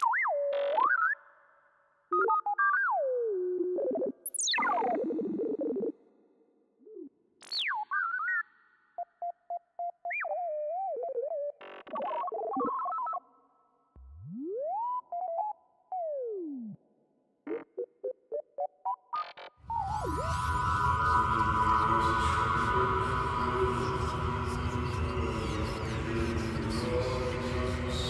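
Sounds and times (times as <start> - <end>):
synthesizer bleeps and glides: 17.5 - 26.8.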